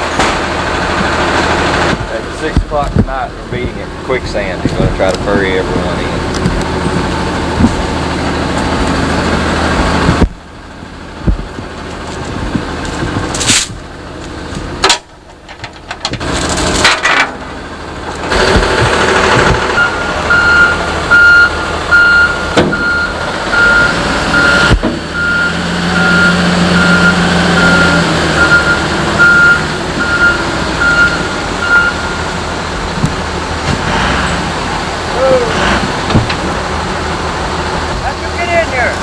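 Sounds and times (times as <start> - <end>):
engine running: 0.0 - 39.0
vehicle warning beeps: 19.7 - 32.4.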